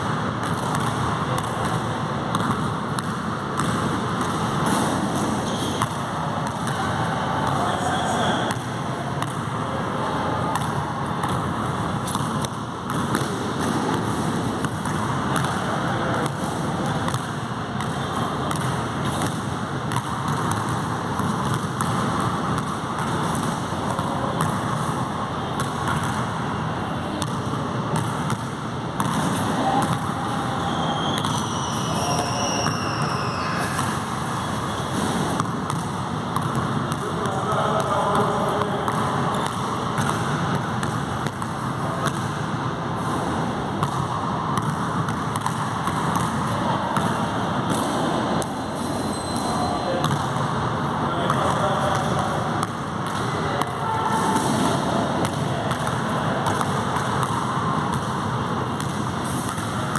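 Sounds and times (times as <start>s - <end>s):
basketball dribbling: 0.0s - 26.5s, 27.1s - 50.5s, 51.3s - 59.9s.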